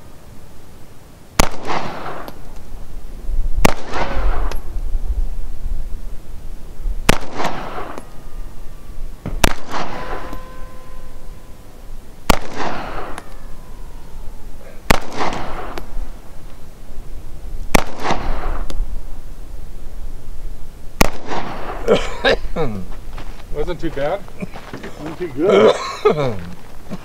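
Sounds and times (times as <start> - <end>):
pistol shots with echo: 1.4 - 2.5, 3.6 - 4.7, 7.0 - 8.2, 9.2 - 10.6, 12.2 - 13.5, 14.8 - 16.1, 17.7 - 18.7, 21.0 - 21.8.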